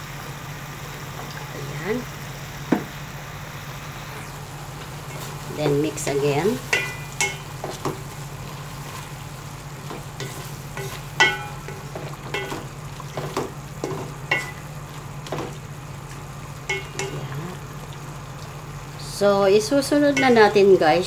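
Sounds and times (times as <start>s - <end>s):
food frying in a pot: 0.0s - 21.0s
low hum: 0.0s - 21.0s
spoon knocking and scraping pot: 6.7s - 8.0s, 9.9s - 14.6s, 16.7s - 17.2s.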